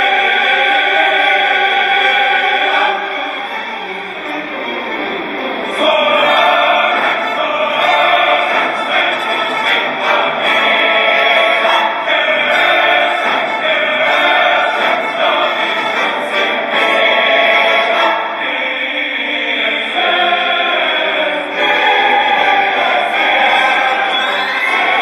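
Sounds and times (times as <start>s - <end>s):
music with operatic singing: 0.0s - 25.0s.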